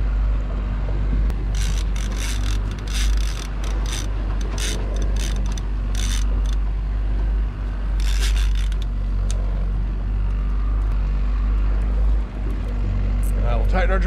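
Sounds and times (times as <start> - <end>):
outboard motor humming: 0.0 - 14.0
fishing reel clicking: 1.4 - 6.6, 8.0 - 9.4.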